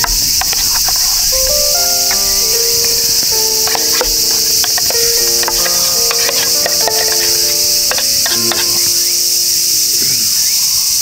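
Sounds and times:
spoon scraping metal tin: 0.0 - 9.0
music of held notes: 0.0 - 9.2
cicadas droning: 0.0 - 11.0.

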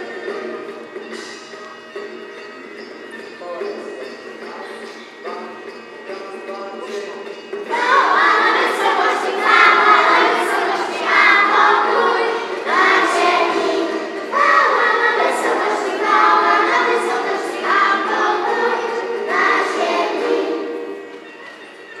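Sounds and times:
musical accompaniment: 0.0 - 22.0
children singing: 7.7 - 21.6.

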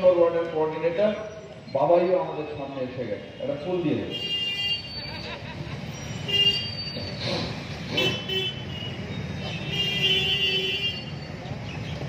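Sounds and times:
traffic rumble: 0.0 - 12.0
vehicle horns honking: 4.0 - 5.0, 6.2 - 6.9, 7.9 - 11.2.

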